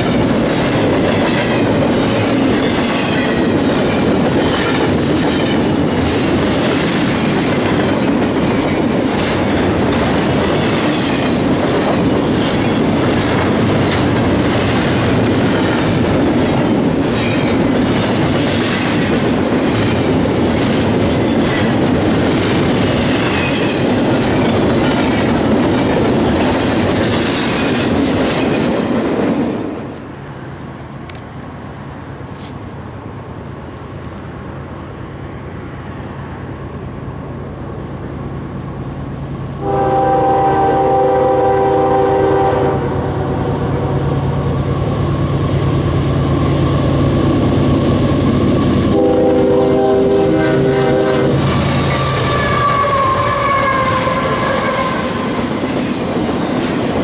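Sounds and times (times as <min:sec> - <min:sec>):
steel wheels clattering over rail joints: 0:00.0 - 0:30.0, 0:44.9 - 0:57.0
train rumbling past: 0:00.0 - 0:57.0.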